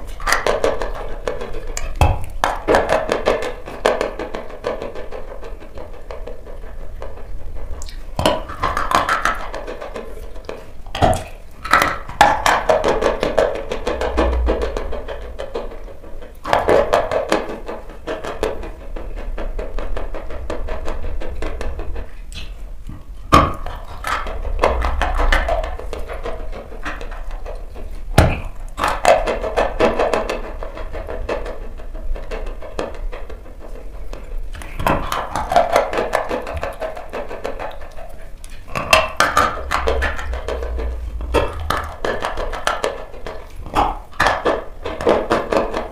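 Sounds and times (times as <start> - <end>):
music: 0.0 - 45.9.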